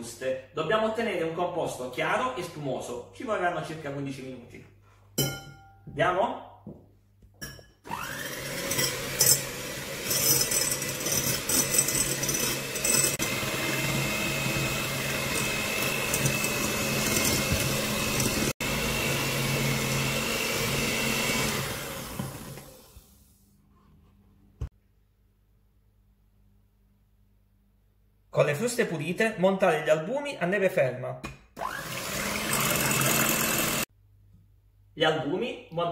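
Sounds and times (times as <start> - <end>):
electric hand mixer whining: 7.9 - 23.2, 31.6 - 33.9.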